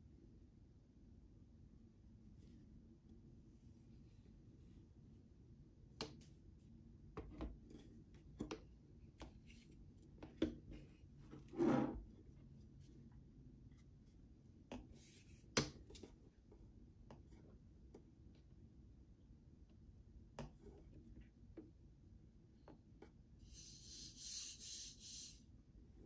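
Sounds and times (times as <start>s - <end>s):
short rubbing scrape: 11.4s - 12.0s, 23.5s - 25.4s.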